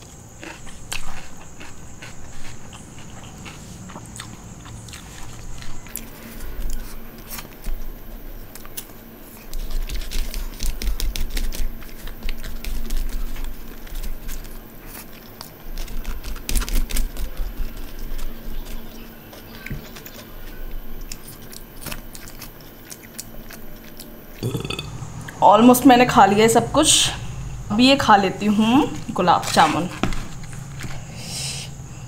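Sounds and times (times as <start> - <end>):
chewing and mouth clicks: 0.4 - 7.8, 8.5 - 25.4.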